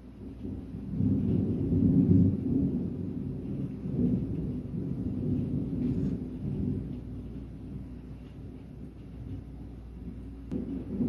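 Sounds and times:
thunder rolling: 0:00.1 - 0:11.0.

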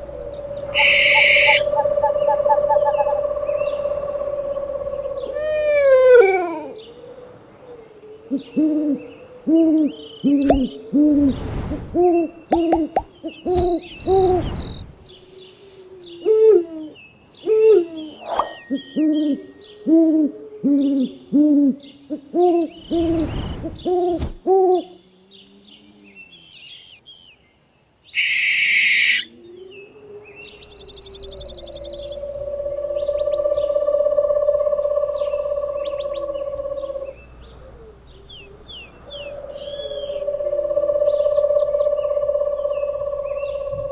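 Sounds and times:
wavering drawn-out call: 0:00.0 - 0:06.8, 0:28.2 - 0:43.9
owl hooting: 0:00.0 - 0:07.3, 0:28.2 - 0:43.9
burst of hiss: 0:14.4 - 0:15.9.

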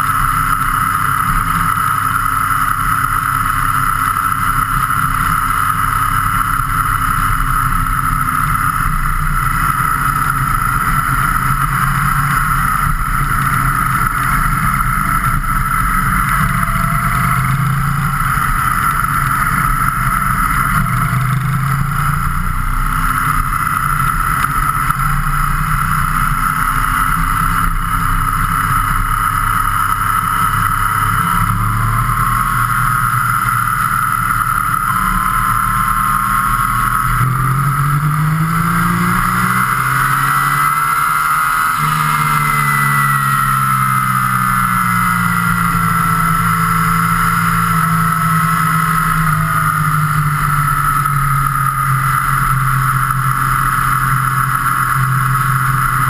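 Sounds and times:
road noise: 0:00.0 - 0:56.0
vehicle engine: 0:00.0 - 0:56.0.

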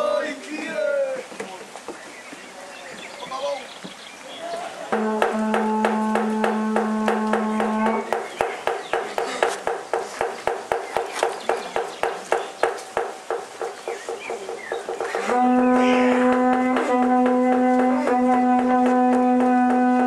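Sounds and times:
rhythmic knocking: 0:04.9 - 0:20.0
long steady horn note: 0:05.0 - 0:08.1, 0:15.2 - 0:20.0.

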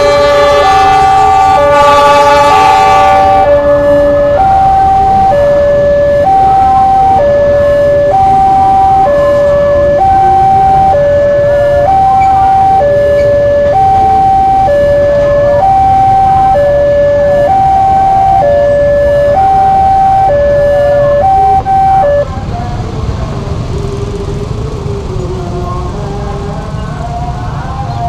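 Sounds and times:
freight train rumbling past: 0:00.0 - 0:06.2
road traffic with motorbikes: 0:00.0 - 0:28.0
level crossing two-tone alarm: 0:00.7 - 0:22.3.

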